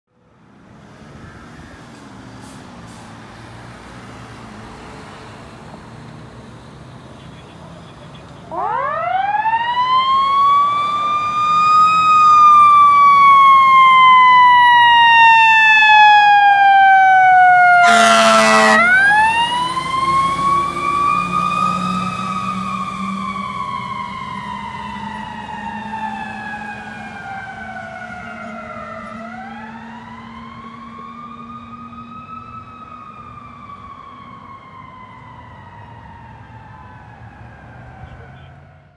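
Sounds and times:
fire engine siren winding: 8.5s - 38.0s
loud horn blast: 17.8s - 19.1s.

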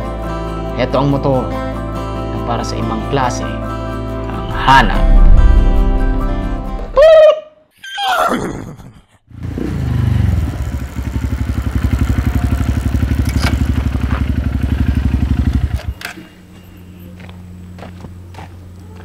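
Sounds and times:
whinny-like cry: 7.0s - 9.1s
motorcycle engine idling: 10.2s - 16.0s.

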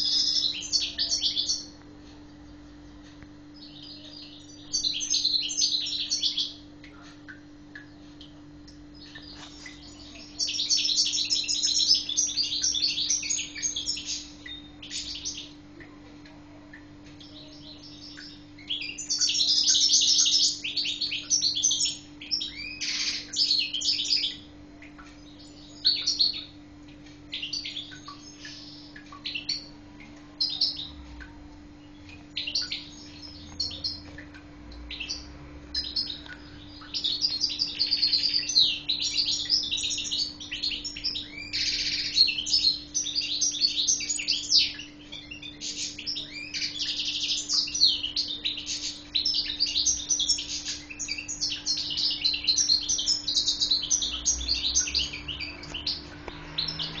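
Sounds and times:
goldfinch twittering song: 0.0s - 1.8s, 3.6s - 15.6s, 17.1s - 26.6s, 27.3s - 29.8s, 30.4s - 57.0s
faint steady hum: 0.0s - 57.0s.

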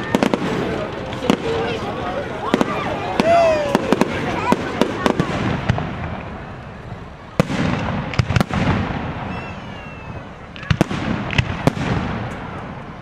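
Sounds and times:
firework whistle: 9.1s - 10.8s.

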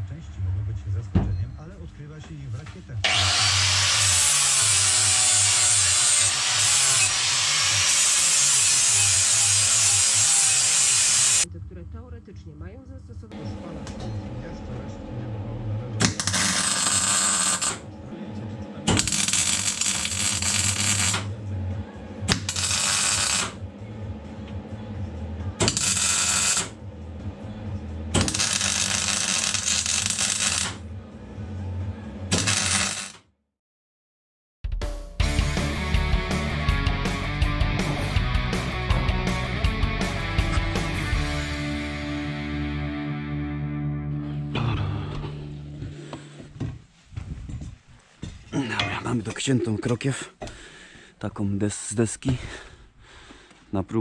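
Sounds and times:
angle grinder grinding metal: 3.0s - 11.4s, 16.0s - 17.9s, 18.9s - 21.3s, 22.3s - 23.6s, 25.6s - 26.8s, 28.2s - 30.8s, 32.3s - 33.2s
welding arc hissing and crackling: 3.2s - 11.5s, 16.0s - 17.8s, 18.9s - 21.3s, 22.3s - 23.6s, 25.6s - 26.8s, 28.2s - 30.8s, 32.3s - 33.2s
steady low hum: 11.5s - 32.3s.

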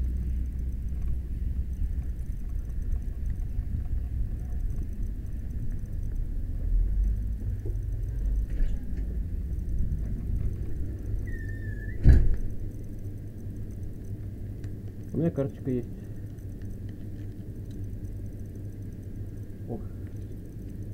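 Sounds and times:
steady low rumble: 0.0s - 20.9s.

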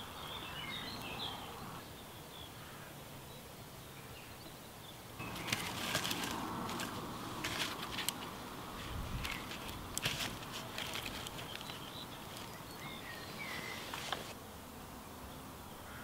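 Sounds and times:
campfire crackling and popping: 5.2s - 14.4s.

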